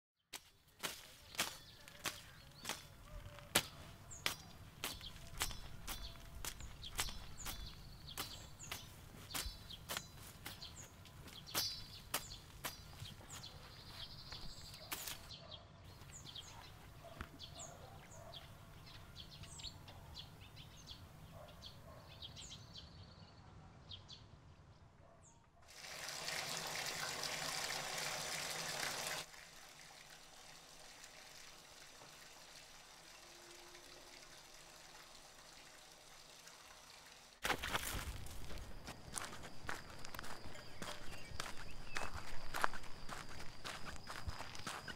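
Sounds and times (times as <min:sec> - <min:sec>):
birds chirping: 0:00.4 - 0:25.5, 0:38.5 - 0:44.9
shower water running: 0:25.7 - 0:37.4.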